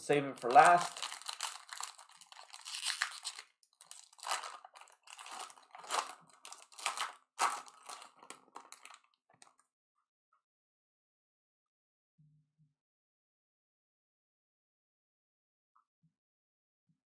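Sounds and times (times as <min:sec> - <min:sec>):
foil wrapper crinkling and tearing: 0:00.3 - 0:09.1.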